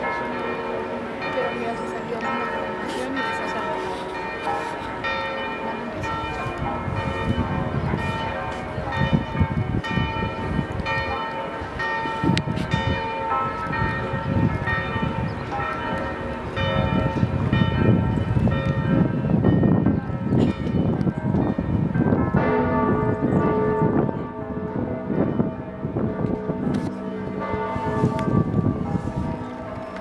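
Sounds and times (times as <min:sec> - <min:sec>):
church bells ringing: 0:00.0 - 0:30.0.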